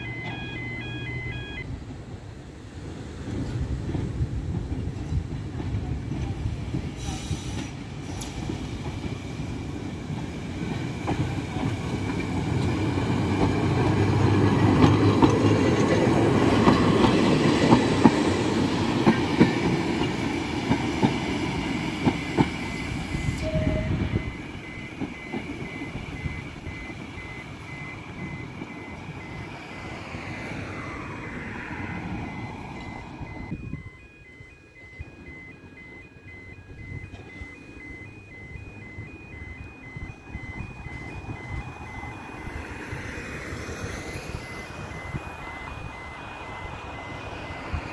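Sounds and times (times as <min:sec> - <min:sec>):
tram rumbling past: 0:00.0 - 0:47.9
wheels clicking over rail joints: 0:03.2 - 0:29.2.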